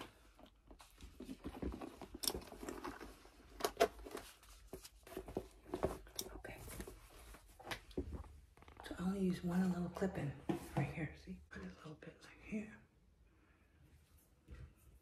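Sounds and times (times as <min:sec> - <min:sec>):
handling rustling: 0:00.1 - 0:08.9.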